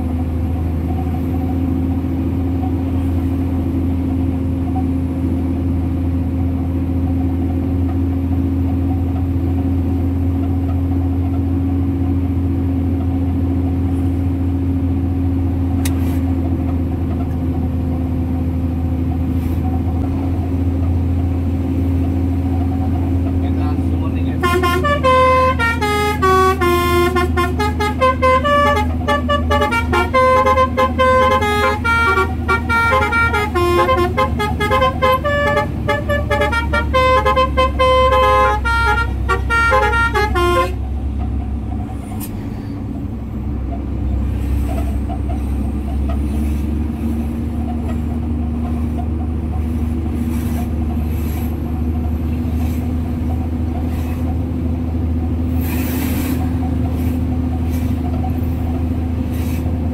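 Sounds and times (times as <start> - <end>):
truck engine drone: 0.0 - 59.9
musical truck horn melody: 24.3 - 41.0.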